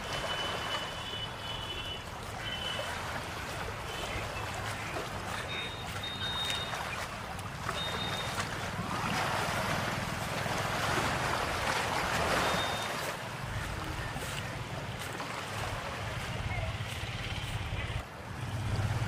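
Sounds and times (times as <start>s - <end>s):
sea surf: 0.0s - 19.0s.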